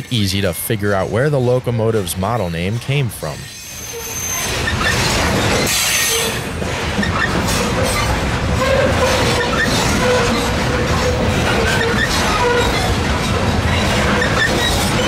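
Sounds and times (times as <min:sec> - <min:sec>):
rhythmic rail clicks: 0:00.0 - 0:15.0
wheels squealing: 0:00.0 - 0:15.0
wheel-on-rail rumble: 0:00.1 - 0:15.0.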